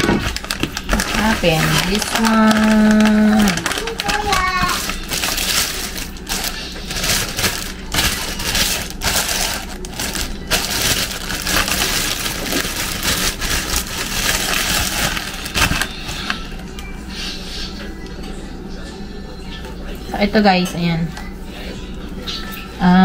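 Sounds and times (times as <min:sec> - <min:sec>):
plastic bag crinkling: 0:00.0 - 0:16.8.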